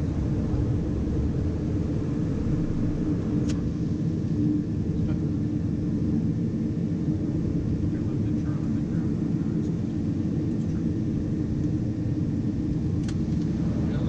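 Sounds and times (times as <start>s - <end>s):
cockpit rumble: 0.0s - 14.0s
light aircraft engine running: 0.0s - 14.0s
sharp click: 13.0s - 13.2s.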